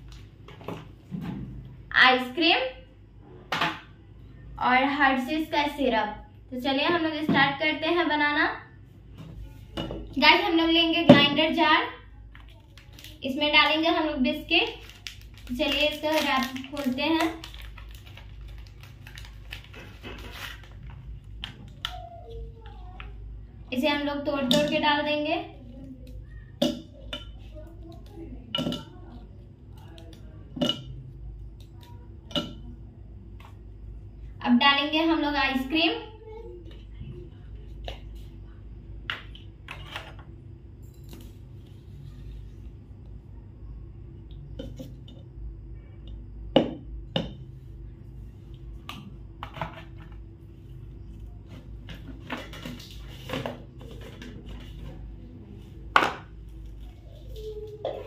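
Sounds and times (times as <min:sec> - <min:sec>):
biscuits breaking crackling: 0:12.4 - 0:13.2, 0:14.7 - 0:22.1.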